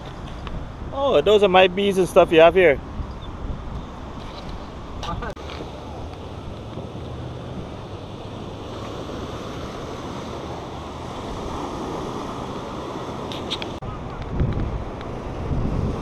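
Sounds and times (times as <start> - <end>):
wind on microphone: 0.0 - 16.0
ocean surf washing onto beach: 4.0 - 16.0.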